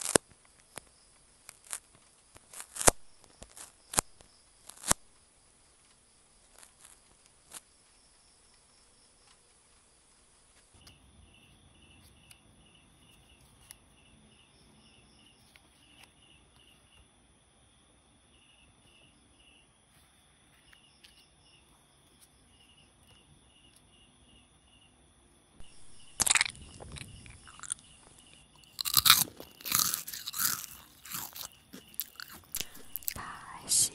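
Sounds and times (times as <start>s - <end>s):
insect chirping: 0.0s - 33.9s
loud crunching: 25.6s - 33.2s.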